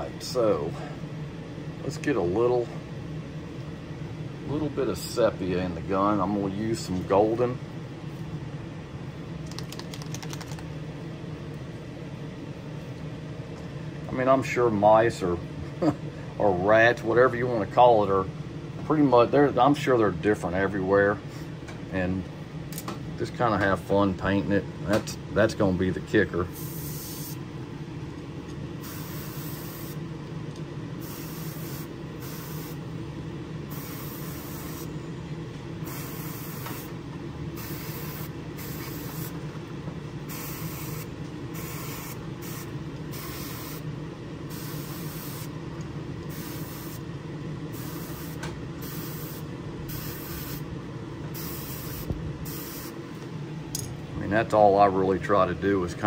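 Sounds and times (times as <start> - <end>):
airbrush spraying hiss: 26.6 - 27.4, 28.8 - 30.0, 31.0 - 32.8, 33.7 - 34.9, 35.8 - 37.0, 37.6 - 39.4, 40.3 - 43.9, 44.5 - 45.5, 46.3 - 47.0, 47.7 - 50.6, 51.4 - 53.0.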